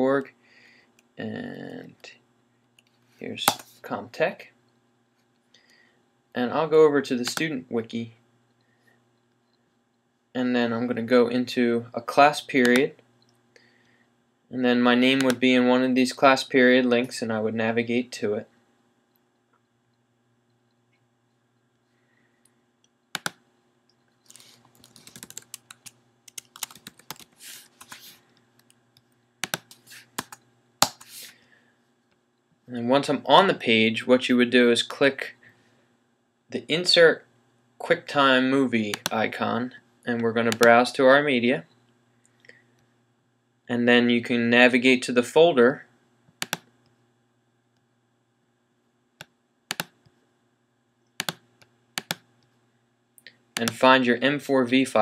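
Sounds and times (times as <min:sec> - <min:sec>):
typing on computer keyboard: 0:24.8 - 0:27.9, 0:49.7 - 0:49.9, 0:52.0 - 0:52.2
computer mouse clicks: 0:46.4 - 0:46.7, 0:49.2 - 0:50.0, 0:51.2 - 0:52.2.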